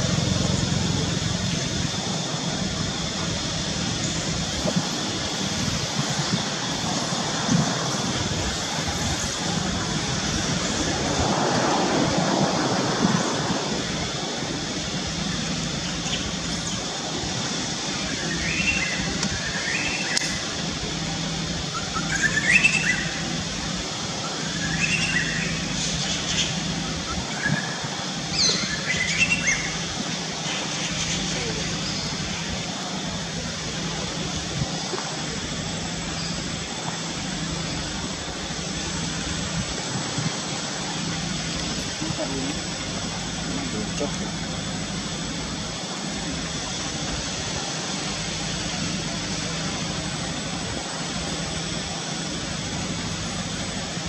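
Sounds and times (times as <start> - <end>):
distant outdoor hiss: 0.0 - 54.0
rising chirping calls: 18.0 - 20.6, 21.6 - 23.4, 24.2 - 32.6.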